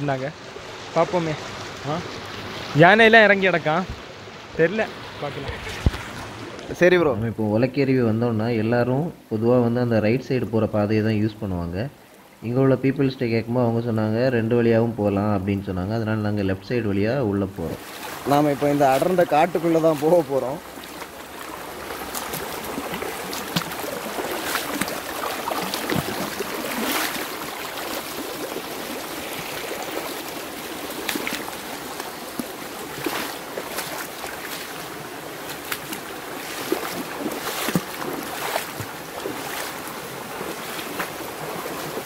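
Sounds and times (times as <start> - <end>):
stream water rushing: 0.0 - 42.0
knocks and splashes: 5.3 - 6.8, 17.8 - 42.0.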